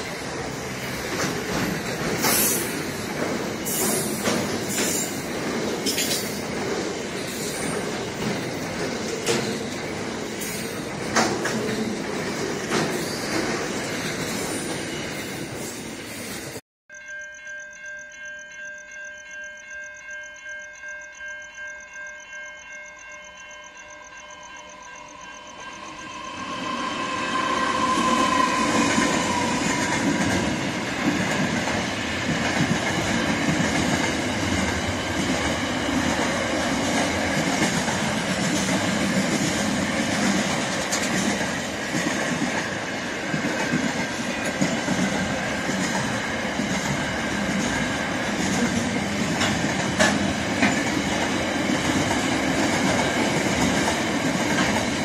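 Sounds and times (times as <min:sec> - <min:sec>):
train rumble and wheel clatter: 0:00.0 - 0:16.6, 0:24.6 - 0:55.0
level crossing bells: 0:16.9 - 0:26.5.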